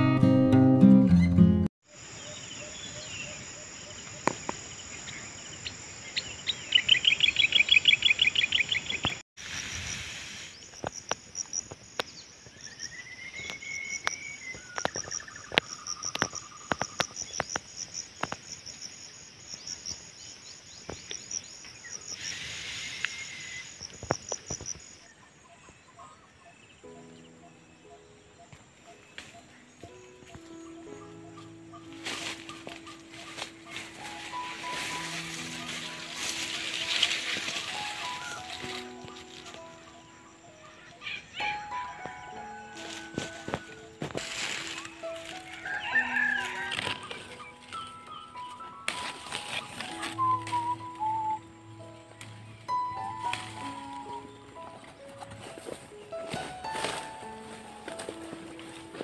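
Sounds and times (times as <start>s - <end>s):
birds calling: 1.9s - 9.2s, 20.6s - 59.0s
high-pitched insect drone: 32.0s - 45.4s.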